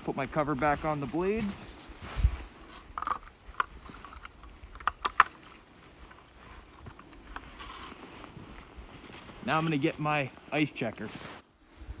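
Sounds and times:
blade guard clicking and knocking: 2.9 - 5.4.

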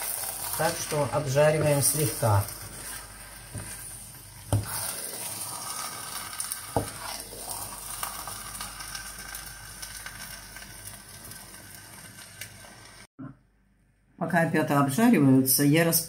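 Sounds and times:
mushrooms sizzling in a frying pan: 0.0 - 13.1
wooden spatula knocking pan: 4.5 - 4.8.

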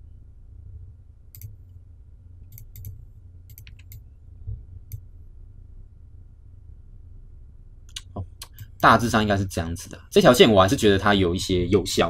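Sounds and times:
low steady hum: 0.0 - 12.0
computer mouse clicking: 1.3 - 1.6, 2.5 - 4.0.

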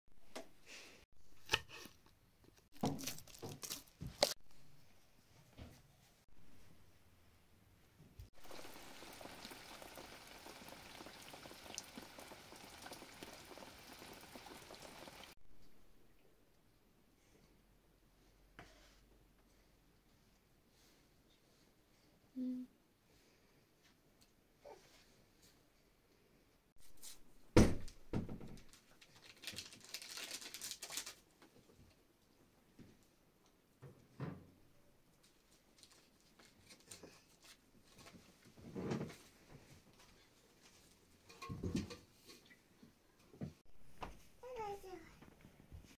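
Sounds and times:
crinkling rustle: 1.8 - 4.4, 28.6 - 31.7, 35.2 - 41.0
rain pattering: 8.4 - 15.4.

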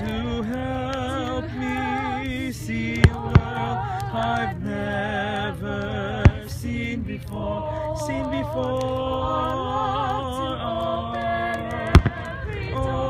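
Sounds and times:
fireworks bangs: 0.0 - 6.9, 11.2 - 13.0
person singing with vibrato: 0.0 - 13.0.

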